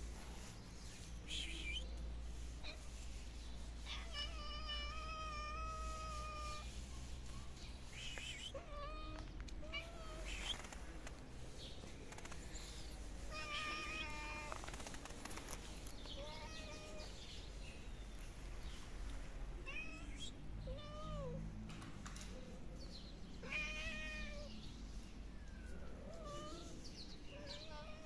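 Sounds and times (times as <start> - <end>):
kittens meowing: 3.8 - 6.8, 12.8 - 14.6, 16.2 - 17.2, 23.4 - 24.5, 25.4 - 28.0.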